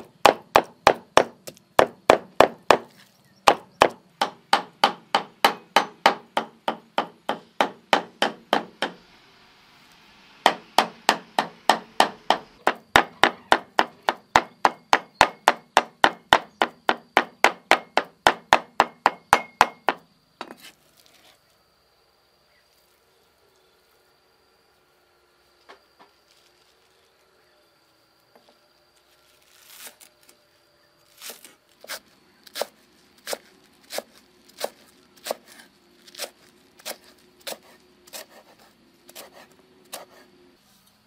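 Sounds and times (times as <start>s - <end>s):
cleaver chopping on wooden block: 0.0s - 2.9s, 3.5s - 9.0s, 10.5s - 20.6s, 31.3s - 35.6s, 36.2s - 40.2s.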